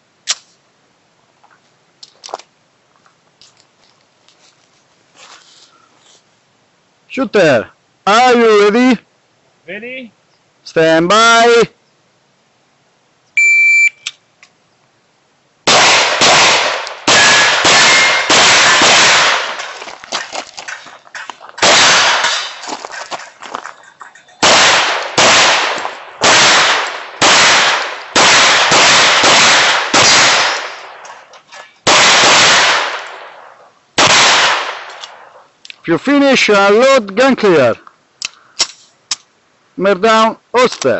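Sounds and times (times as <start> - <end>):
shot timer beep: 13.4 - 14.1
pistol shots with echo: 15.7 - 19.8, 21.6 - 22.6, 24.4 - 31.0, 31.8 - 35.2.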